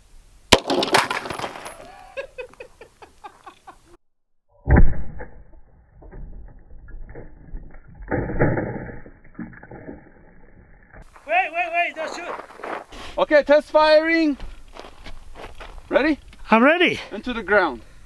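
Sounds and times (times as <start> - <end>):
concrete pieces clattering: 0.6 - 2.1
dull rifle blast: 4.6 - 5.5.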